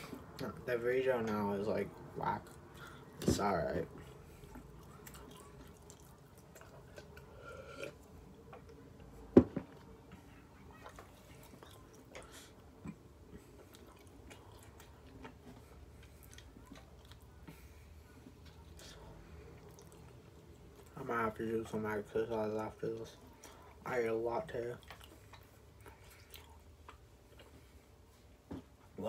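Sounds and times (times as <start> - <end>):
person chewing food: 3.8 - 21.0, 24.4 - 28.8.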